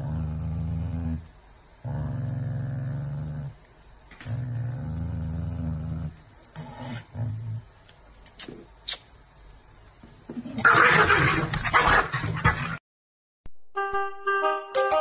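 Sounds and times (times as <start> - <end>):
dog growling low: 0.0 - 3.6, 4.2 - 7.8.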